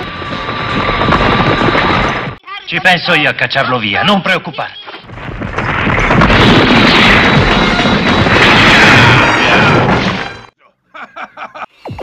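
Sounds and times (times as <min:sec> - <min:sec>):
explosion with rock shattering: 0:05.1 - 0:10.5.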